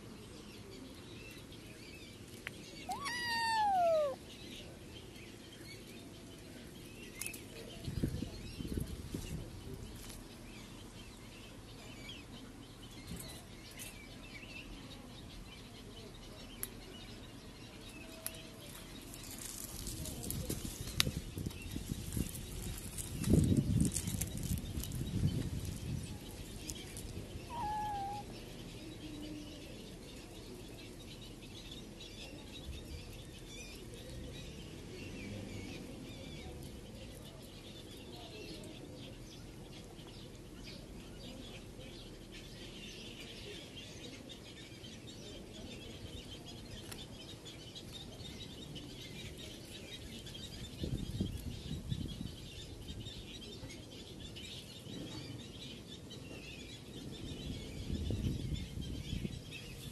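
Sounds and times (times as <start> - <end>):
birds chirping: 0.0 - 8.6, 21.6 - 59.9
wavering bird call: 2.9 - 4.2, 27.5 - 28.3.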